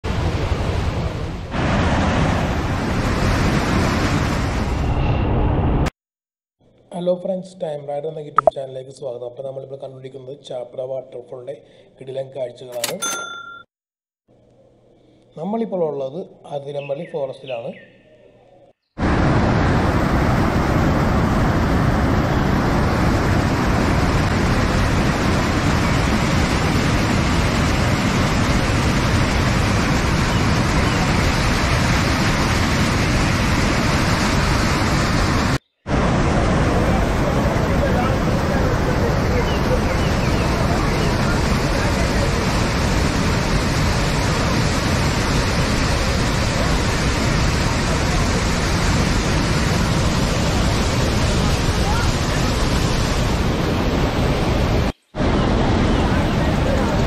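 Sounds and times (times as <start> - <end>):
whitewater rushing over rocks: 19.0 - 57.0.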